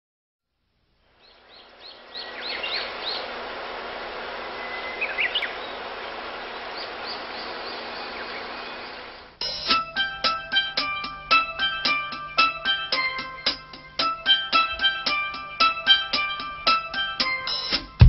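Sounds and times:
steady outdoor hiss: 0.5s - 18.0s.

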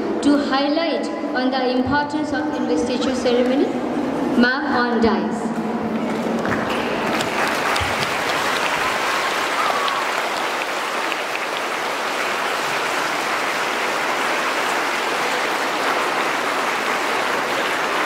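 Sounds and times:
audience clapping: 5.9s - 18.0s.

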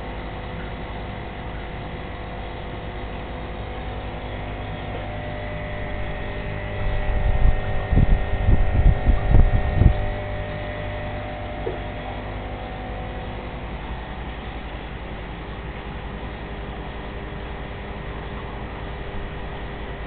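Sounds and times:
aquarium air pump humming: 0.0s - 20.0s
low rumbling thumps: 4.9s - 13.2s.

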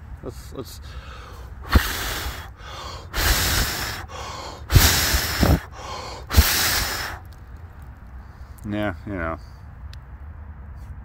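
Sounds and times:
person blowing hard on embers: 1.5s - 7.4s.

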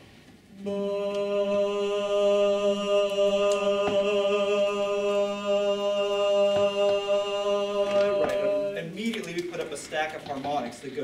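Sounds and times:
chorus singing sustained note: 0.5s - 9.0s.

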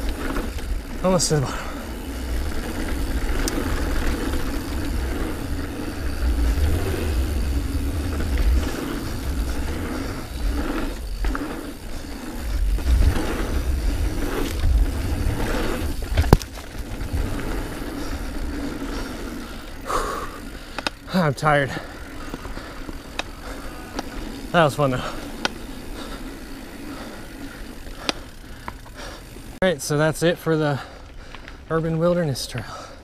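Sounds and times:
bike tyre noise and scraping: 0.0s - 33.0s
wind rumble on microphone: 2.2s - 11.4s, 12.4s - 18.5s.

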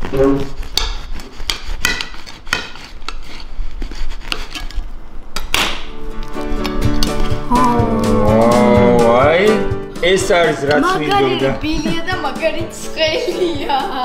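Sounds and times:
knife sawing through bread crust: 0.0s - 4.8s.

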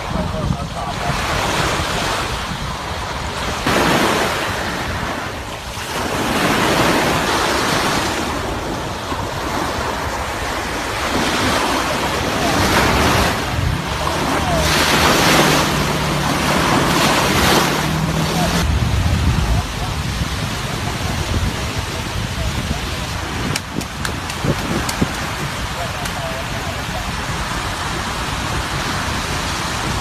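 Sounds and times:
small waves breaking on sand: 0.0s - 30.0s
wind buffeting microphone: 0.0s - 30.0s.

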